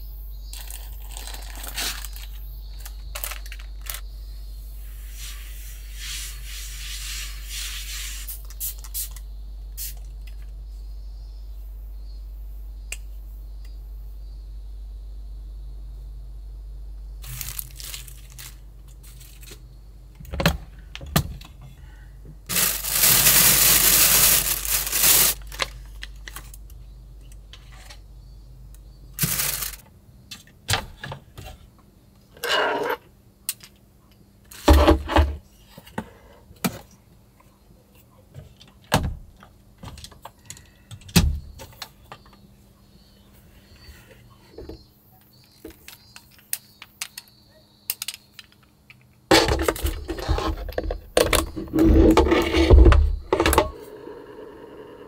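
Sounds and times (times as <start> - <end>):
low steady hum: 9.2 - 30.3
long rustle: 22.5 - 25.6.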